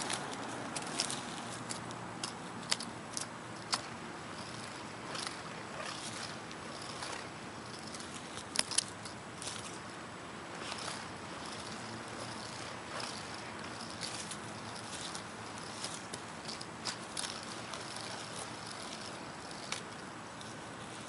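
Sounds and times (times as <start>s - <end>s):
outdoor background noise: 0.0s - 21.0s.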